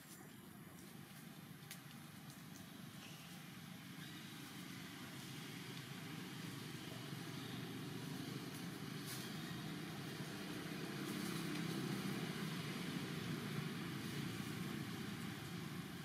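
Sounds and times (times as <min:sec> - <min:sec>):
faint rustle: 0:08.2 - 0:12.3.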